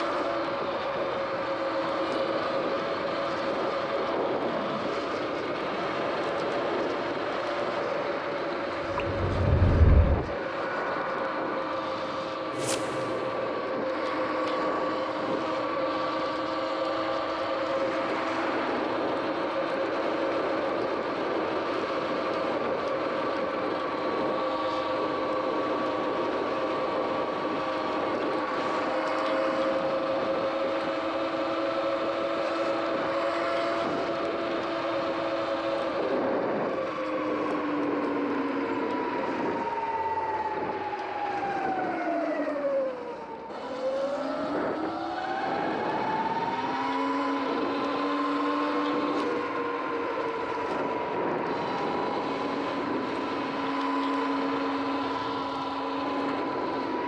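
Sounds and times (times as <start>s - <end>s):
wind rushing: 8.6s - 10.4s, 12.6s - 13.5s.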